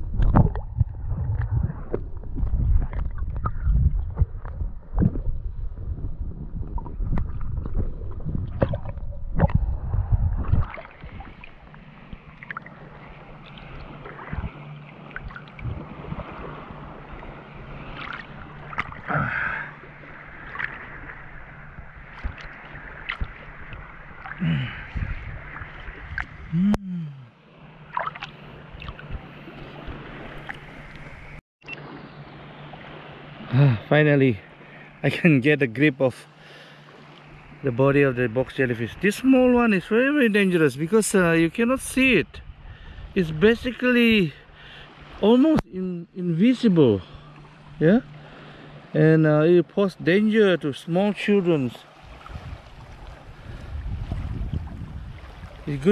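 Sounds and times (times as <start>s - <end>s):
seawater sloshing and splashing: 0.0s - 26.6s, 27.6s - 33.6s, 50.7s - 55.9s
muffled underwater rumble: 0.0s - 27.3s, 52.2s - 55.6s.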